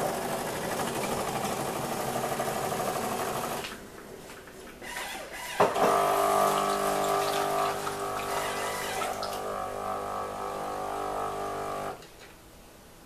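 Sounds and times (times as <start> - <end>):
pump humming: 4.8 - 12.1.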